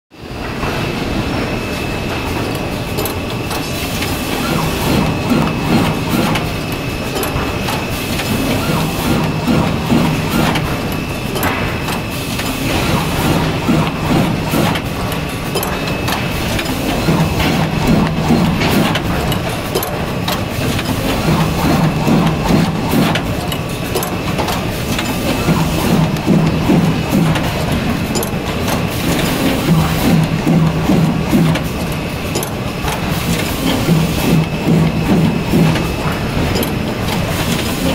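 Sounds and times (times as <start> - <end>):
binding machine low hum: 0.2 - 37.9
machine clicks and knocks: 2.1 - 37.9.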